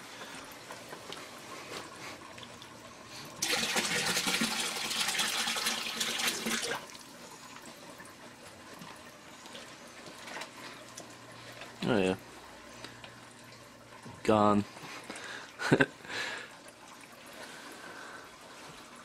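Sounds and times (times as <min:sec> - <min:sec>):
water splashing into a tank: 0:02.3 - 0:08.8.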